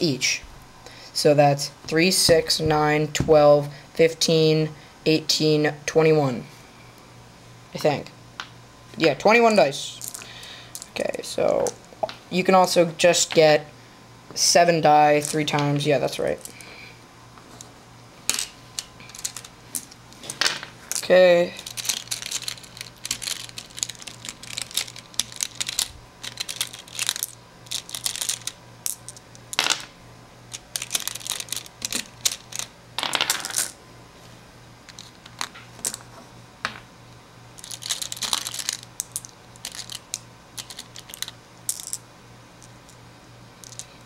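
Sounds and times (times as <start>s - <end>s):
dice clicking and clattering: 10.0s - 10.9s, 18.3s - 29.9s, 30.5s - 33.8s, 37.6s - 42.0s, 43.6s - 43.9s.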